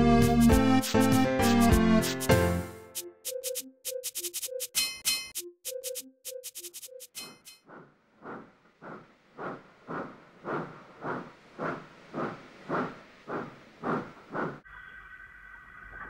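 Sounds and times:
steam engine chuffing: 0:08.4 - 0:14.6.

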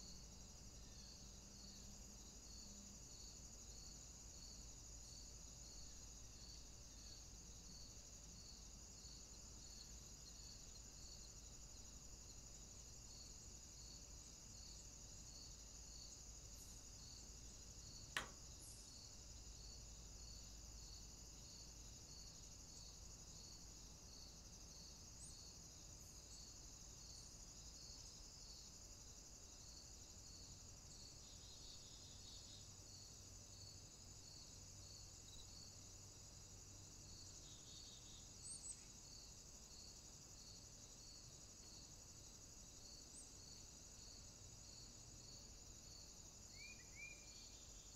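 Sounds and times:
faint high hiss: 0:00.0 - 0:23.7, 0:44.9 - 0:47.9.

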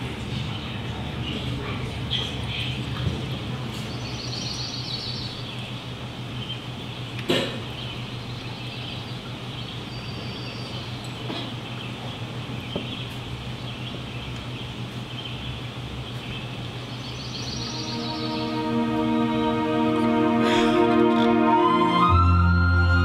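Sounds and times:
steady low hum and hiss: 0:00.0 - 0:23.0
music: 0:17.7 - 0:23.0.

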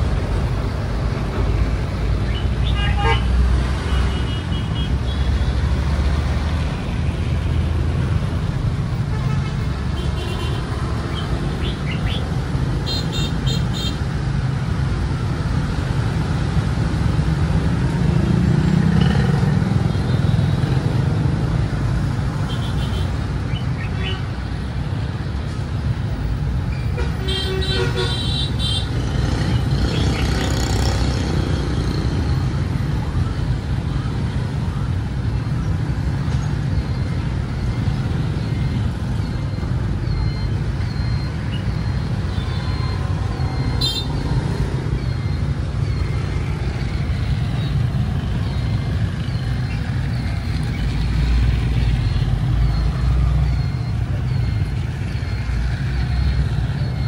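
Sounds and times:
high beeps: 0:36.2 - 0:57.0.

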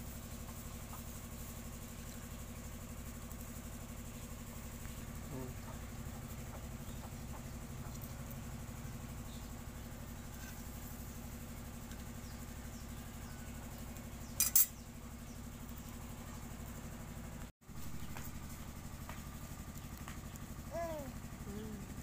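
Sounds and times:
low mechanical hum: 0:00.0 - 0:22.0
metallic scrape: 0:14.4 - 0:14.7.

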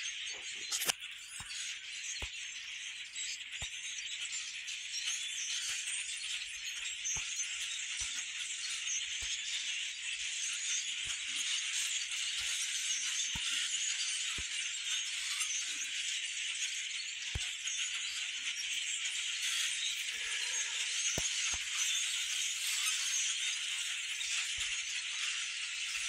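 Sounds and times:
flock of songbirds chirping: 0:00.0 - 0:26.0.

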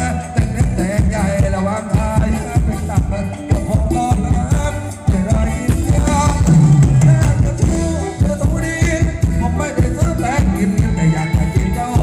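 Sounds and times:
drum kit beat: 0:00.0 - 0:12.0
person singing melody: 0:00.0 - 0:12.0.

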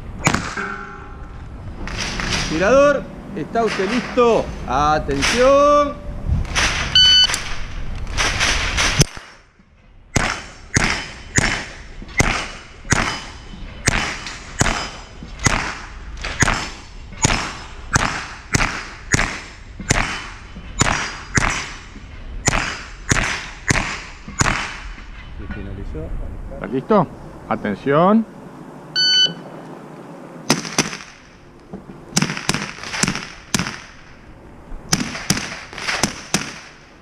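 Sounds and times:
shot timer beep: 0:07.0 - 0:07.3, 0:29.0 - 0:29.4
rifle shots: 0:10.2 - 0:21.8, 0:22.4 - 0:24.9, 0:30.5 - 0:31.4, 0:32.1 - 0:34.2, 0:34.9 - 0:36.9.

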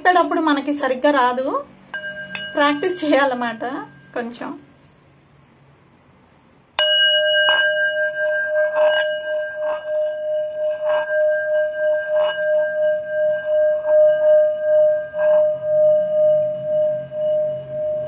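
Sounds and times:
bowl struck with wooden stick: 0:01.9 - 0:04.4, 0:06.8 - 0:18.0
singing bowl ringing tone: 0:01.9 - 0:04.7, 0:06.8 - 0:18.0
stick rubbing bowl rim: 0:06.8 - 0:18.0.

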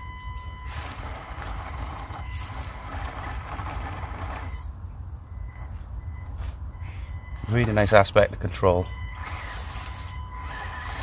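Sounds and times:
small electric motor and gears: 0:00.6 - 0:04.7, 0:09.1 - 0:11.0
tyres scrabbling on gravel: 0:00.6 - 0:04.7, 0:07.4 - 0:11.0.

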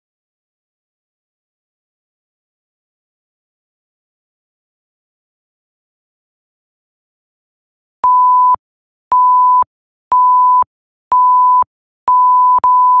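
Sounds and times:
timer beeps: 0:08.0 - 0:13.0.

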